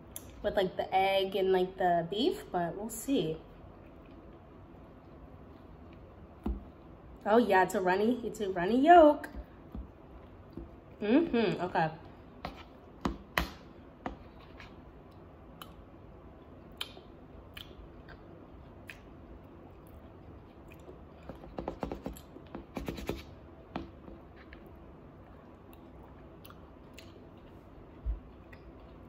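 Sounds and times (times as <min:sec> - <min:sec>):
quiet chewing: 0:16.4 - 0:21.4, 0:24.3 - 0:29.0.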